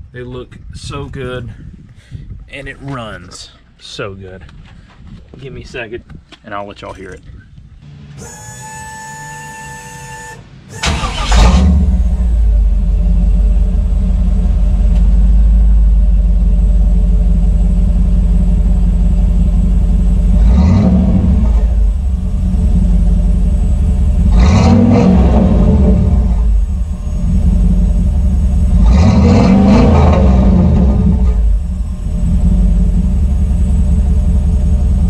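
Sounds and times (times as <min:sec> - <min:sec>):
engine cranking and idling: 0:06.8 - 0:35.0
engine revving: 0:07.8 - 0:15.4, 0:19.5 - 0:35.0.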